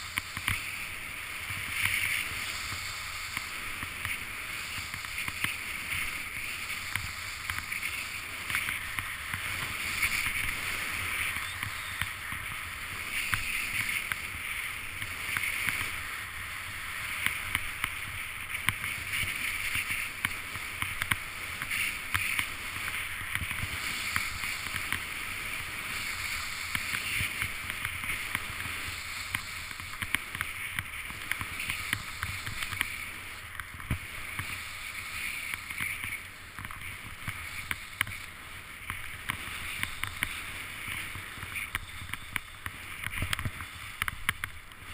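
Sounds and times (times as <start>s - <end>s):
skis swishing over snow: 0.0s - 44.9s
small clicks and knocks: 38.8s - 44.6s.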